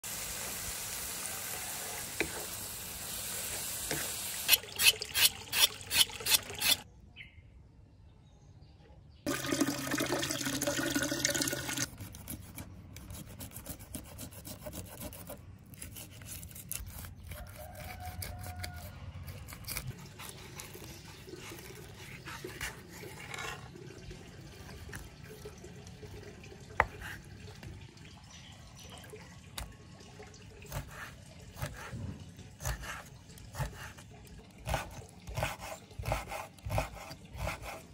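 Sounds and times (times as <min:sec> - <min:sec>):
running splashing water: 0:09.3 - 0:11.9.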